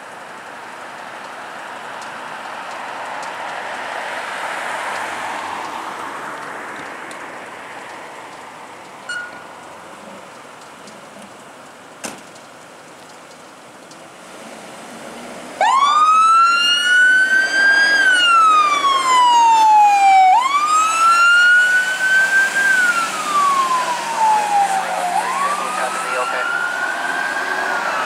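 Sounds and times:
fire truck siren wailing: 15.6s - 28.0s.

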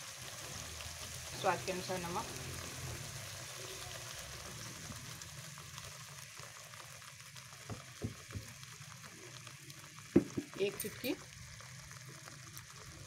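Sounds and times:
sauce sizzling in a pan: 0.0s - 13.0s
light knocks: 7.7s - 8.5s, 10.2s - 10.5s.

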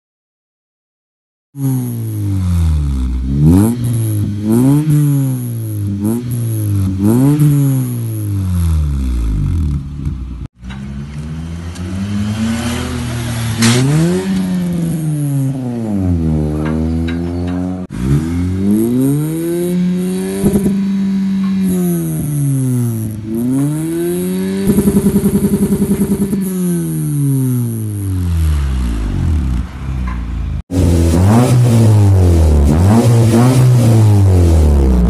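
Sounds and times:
car exhaust revving: 1.6s - 35.0s
car accelerating away: 10.7s - 21.8s, 30.7s - 35.0s.

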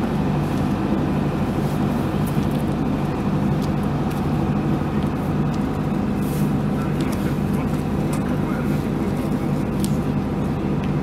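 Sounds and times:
low engine drone: 0.0s - 11.0s.

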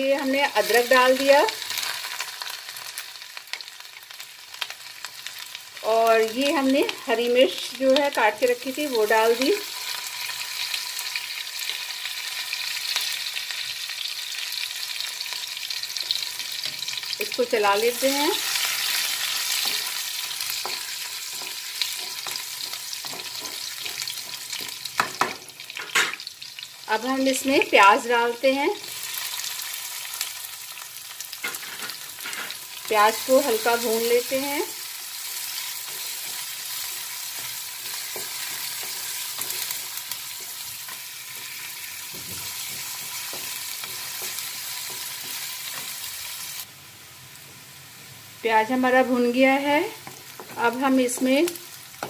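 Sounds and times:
food sizzling in hot oil: 0.0s - 52.0s
spatula scraping a pan: 18.0s - 26.3s, 31.4s - 32.6s
spatula scraping metal pan: 31.4s - 32.6s.

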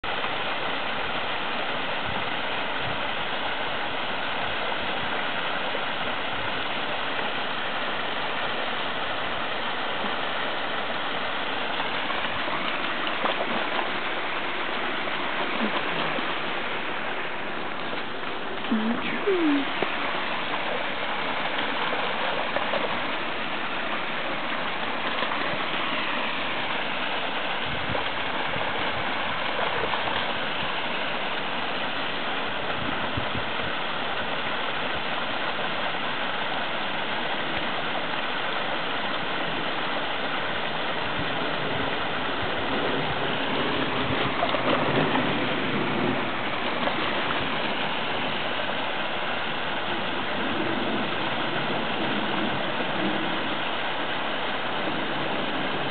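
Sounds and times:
stream water over rocks: 0.0s - 55.9s.

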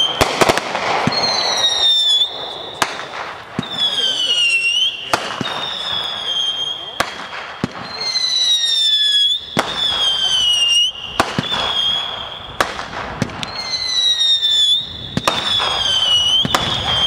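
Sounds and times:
fireworks cracking: 0.0s - 17.0s
fireworks whistling: 0.0s - 17.0s.

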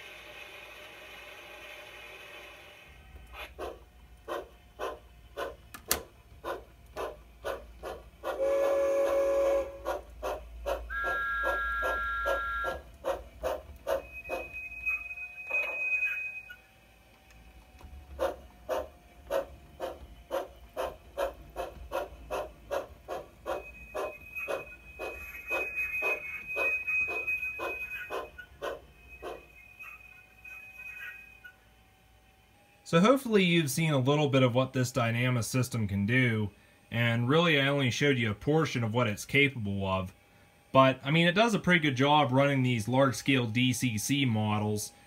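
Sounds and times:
steam locomotive chuffing: 0.0s - 5.7s, 6.3s - 16.0s, 17.5s - 31.6s
steam whistle blast: 8.4s - 9.9s, 10.9s - 12.8s.

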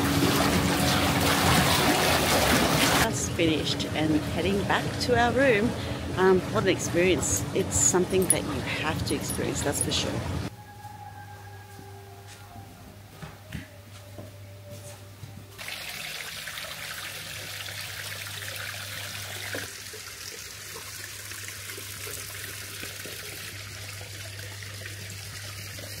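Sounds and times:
water running: 0.0s - 10.5s, 15.6s - 26.0s
low steady hum: 0.0s - 15.6s.

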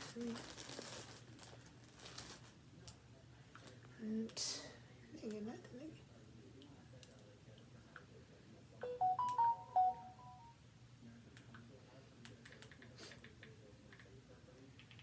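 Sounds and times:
smartphone chime: 8.8s - 10.6s.

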